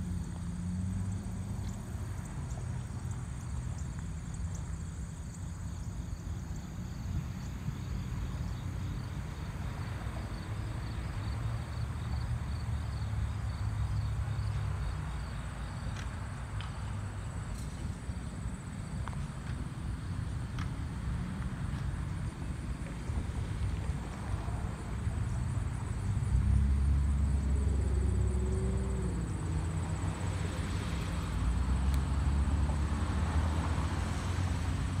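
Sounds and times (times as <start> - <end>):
insects trilling: 24.2 - 34.9.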